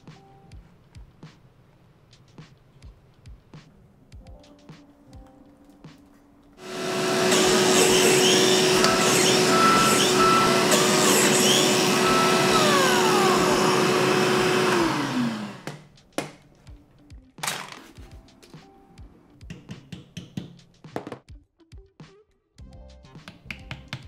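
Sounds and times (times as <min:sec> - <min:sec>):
biscuit joiner cutting wood: 0:06.6 - 0:15.8
dust extractor vacuum: 0:06.6 - 0:15.8.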